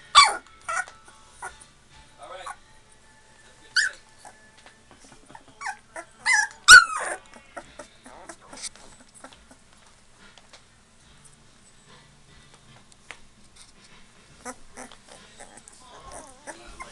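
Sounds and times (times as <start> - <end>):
puppies whimpering and squealing: 0.0 - 1.8, 3.7 - 9.8, 14.3 - 16.9.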